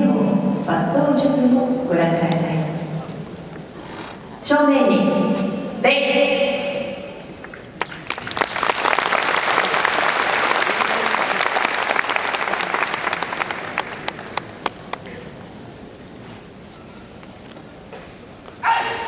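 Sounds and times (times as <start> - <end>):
audience applauding: 7.8 - 15.1.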